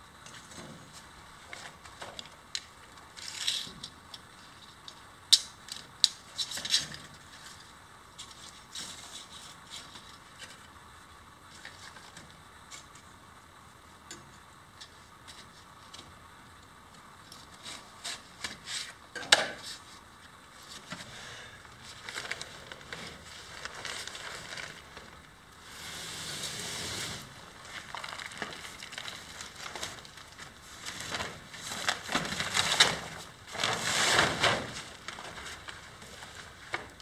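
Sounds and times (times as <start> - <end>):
plastic sheeting crinkling: 19.6 - 37.0.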